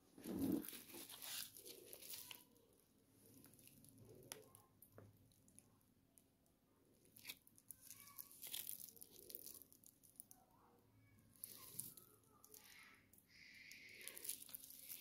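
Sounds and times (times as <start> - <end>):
plastic pouch crinkling: 0.2 - 2.6, 7.1 - 10.4, 11.4 - 12.9, 13.6 - 15.0.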